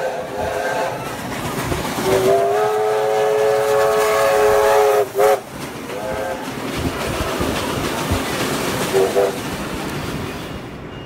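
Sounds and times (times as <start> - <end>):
steam whistle blasts: 0.0 - 1.0, 2.0 - 5.4, 8.9 - 9.4
passing train: 0.0 - 11.0.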